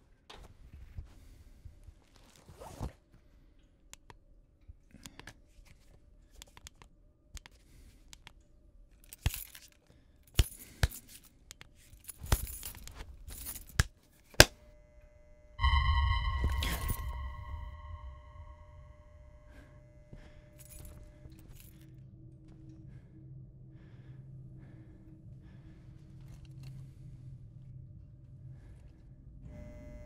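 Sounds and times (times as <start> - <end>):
faint steady hum: 15.6 - 19.5.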